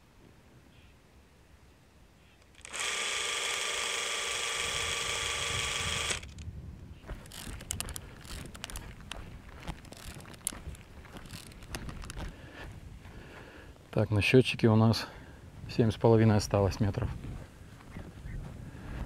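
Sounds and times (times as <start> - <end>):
cine camera motor whirring: 2.4 - 6.4, 7.1 - 8.8, 9.8 - 10.6, 11.2 - 12.3
rustling: 7.0 - 12.7
clicks: 7.1 - 12.3.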